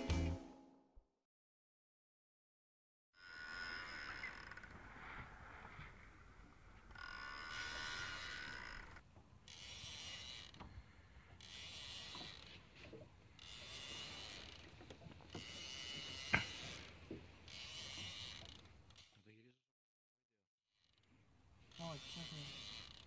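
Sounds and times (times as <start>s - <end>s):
fishing reel winding: 3.2s - 4.8s, 6.9s - 10.7s, 11.4s - 12.6s, 13.3s - 14.7s, 15.3s - 19.2s, 20.8s - 23.0s.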